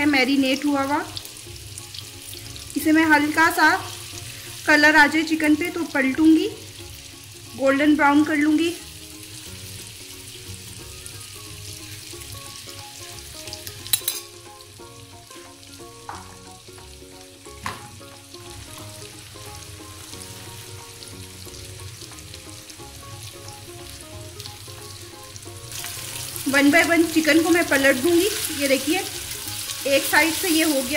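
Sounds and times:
chicken frying in a pan: 0:00.0 - 0:30.9
utensil clacking against pan: 0:13.9 - 0:14.4.

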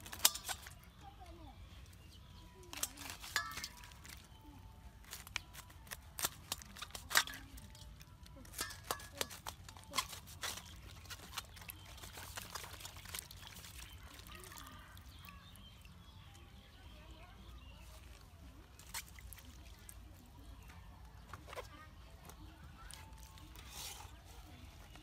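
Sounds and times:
knife crunching through cabbage: 0:05.0 - 0:14.6.

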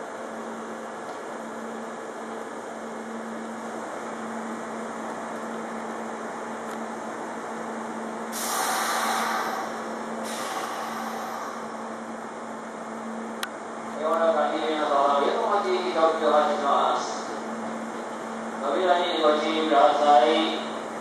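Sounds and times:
electric train equipment hum: 0:00.0 - 0:21.0
compressed air hissing: 0:08.3 - 0:11.9.

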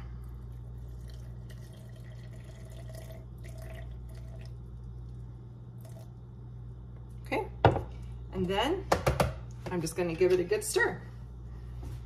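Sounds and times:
low hum: 0:00.0 - 0:08.6
water trickling into a jar: 0:00.5 - 0:05.2.

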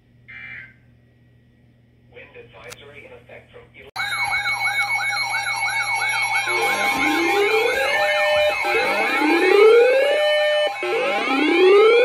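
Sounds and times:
fast yelping alarm: 0:04.0 - 0:12.0
slow rising siren wails: 0:04.0 - 0:12.0
steady alarm tones: 0:04.0 - 0:12.0.

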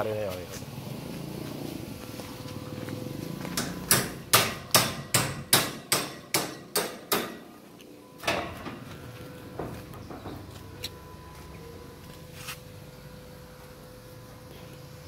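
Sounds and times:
hammer strikes: 0:03.5 - 0:07.6.

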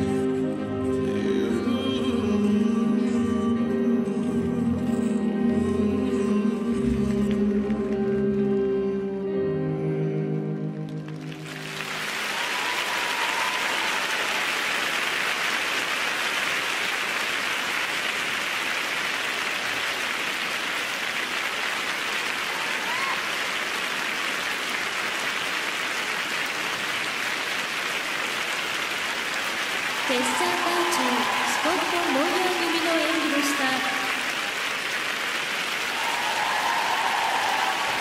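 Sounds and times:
arena crowd applause: 0:11.0 - 0:38.0.

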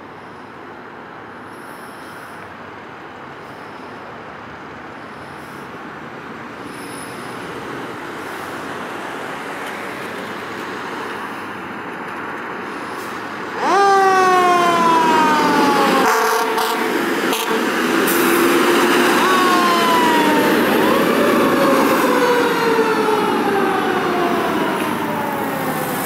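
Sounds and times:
fire engine engine running: 0:05.4 - 0:26.0
fire engine siren: 0:13.4 - 0:26.0.

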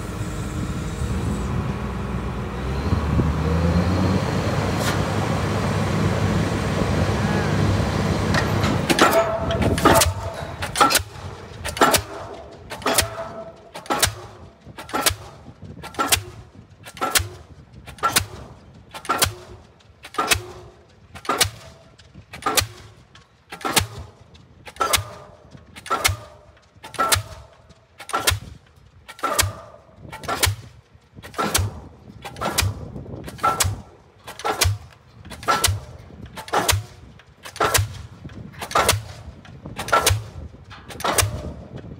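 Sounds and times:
pile hammer blows with metallic ring: 0:08.2 - 0:41.9.

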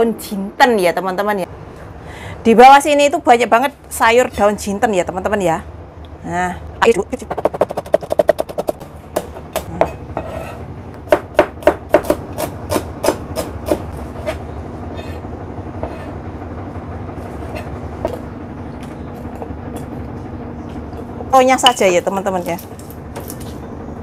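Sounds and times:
steady low hum: 0:00.0 - 0:24.0
cleaver chopping on plastic board: 0:11.1 - 0:13.8.

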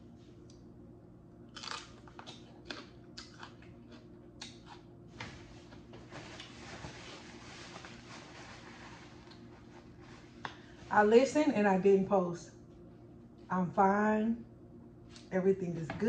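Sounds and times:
crunching and chewing pepper: 0:01.4 - 0:05.0
paper towel rustling: 0:05.3 - 0:11.2.

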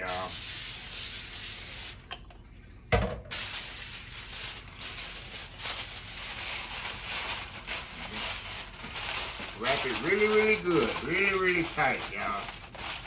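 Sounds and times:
aluminum foil crinkling: 0:03.3 - 0:13.0.

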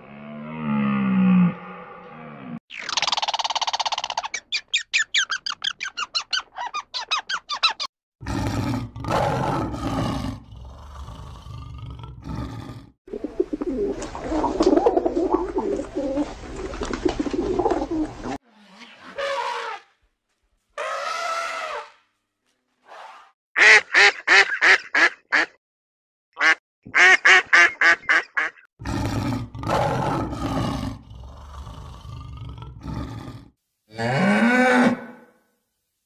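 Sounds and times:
squirrel chirping chatter: 0:02.8 - 0:07.9
pigeons cooing: 0:13.1 - 0:18.4.

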